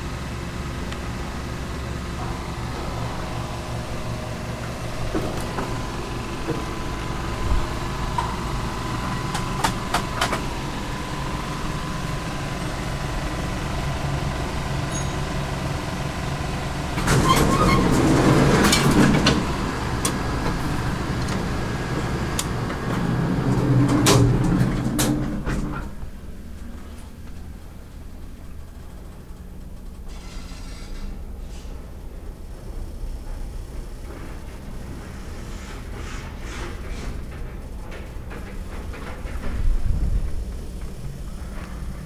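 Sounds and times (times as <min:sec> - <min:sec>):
elevator hum: 0:00.0 - 0:42.0
rumbling mechanical noise: 0:00.0 - 0:42.0.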